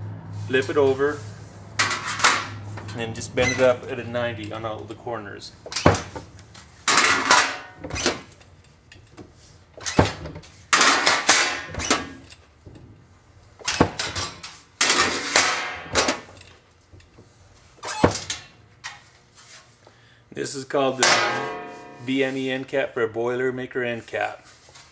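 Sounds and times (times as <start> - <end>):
sheet metal clanging: 1.8 - 4.6, 6.8 - 8.4, 9.8 - 12.3, 13.6 - 16.5, 20.9 - 22.6.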